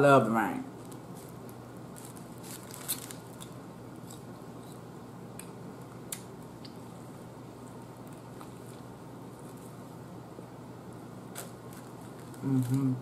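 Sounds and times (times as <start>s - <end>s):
steady low hiss: 0.0s - 13.0s.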